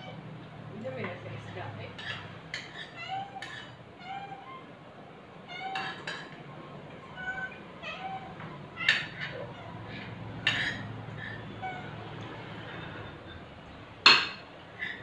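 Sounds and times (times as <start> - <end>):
cutlery clinking on ceramic plates: 2.0 - 3.8, 5.8 - 6.4, 10.4 - 11.3, 14.1 - 15.0.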